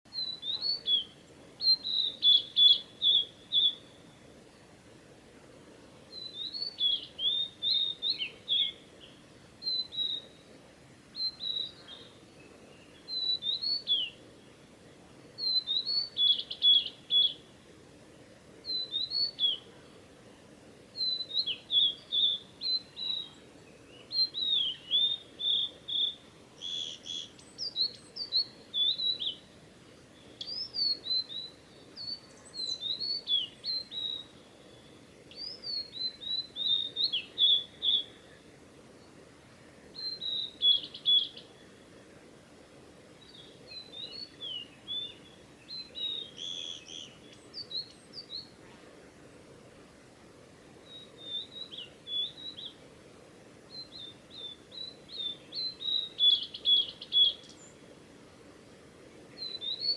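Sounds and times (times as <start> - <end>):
bird singing whistled notes: 0.1 - 4.2, 6.1 - 10.5, 11.1 - 14.2, 15.4 - 17.5, 18.6 - 19.7, 20.9 - 29.6, 30.2 - 38.4, 39.9 - 41.8, 43.2 - 48.6, 50.8 - 52.8, 53.7 - 57.8, 59.4 - 59.9.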